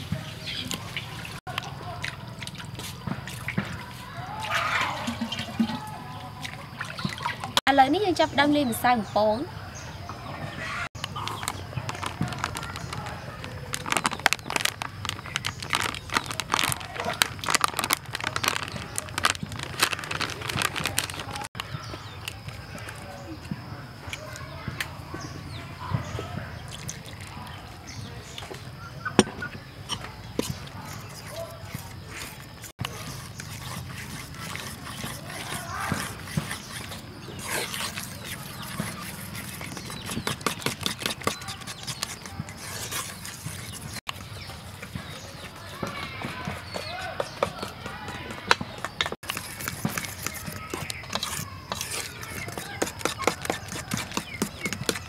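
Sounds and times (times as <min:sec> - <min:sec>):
fork stirring wet batter: 0:10.9 - 0:23.2, 0:29.6 - 0:55.0
plastic packet crinkling: 0:11.0 - 0:21.6.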